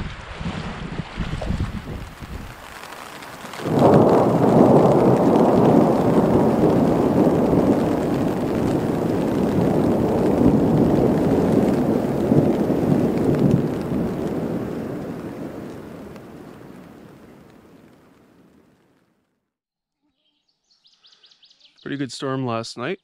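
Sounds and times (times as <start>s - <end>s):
rolling thunder: 0.0s - 2.8s, 3.4s - 17.9s.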